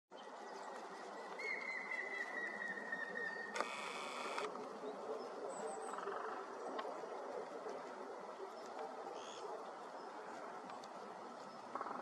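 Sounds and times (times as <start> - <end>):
low background noise: 0.1 - 12.0.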